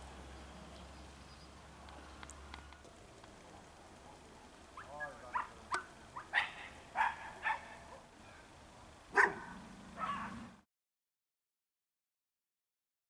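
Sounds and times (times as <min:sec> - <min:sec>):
dog barking: 0:03.5 - 0:08.1, 0:09.1 - 0:10.4.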